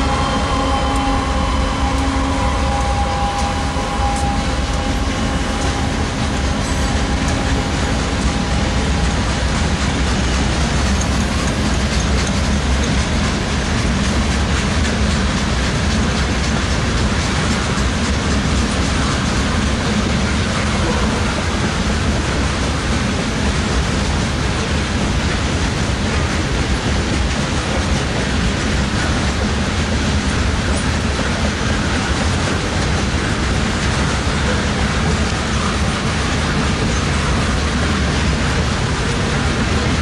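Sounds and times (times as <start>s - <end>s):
freight train wheels rumbling: 0.0s - 40.0s.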